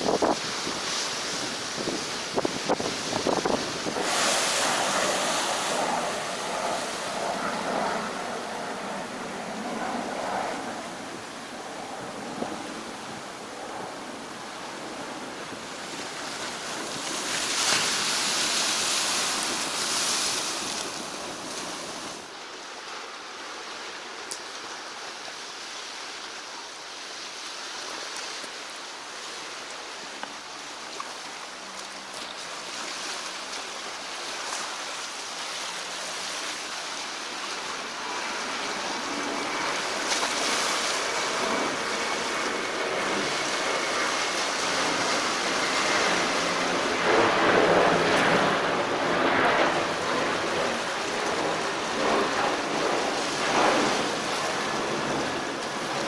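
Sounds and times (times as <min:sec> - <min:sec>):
wind on microphone: 0:00.0 - 0:22.3, 0:36.1 - 0:56.0
sea surf washing on shore: 0:00.0 - 0:56.0.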